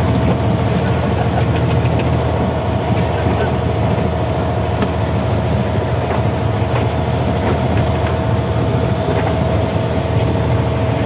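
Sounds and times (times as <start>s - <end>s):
boat engine rumbling: 0.0s - 11.0s
choppy sea washing: 0.0s - 11.0s
faint engine knocks: 4.7s - 5.0s, 6.0s - 8.2s.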